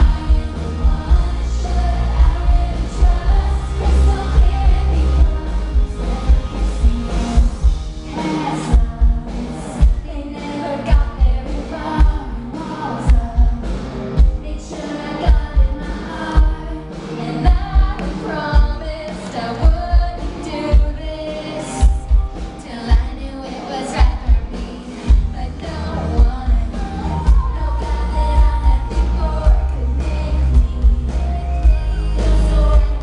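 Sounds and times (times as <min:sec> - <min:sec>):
heavy bass drum beat: 0:00.0 - 0:10.2, 0:17.4 - 0:19.0, 0:24.0 - 0:33.0
live pop song through loudspeakers: 0:00.0 - 0:33.0
person singing lead vocal: 0:00.0 - 0:33.0.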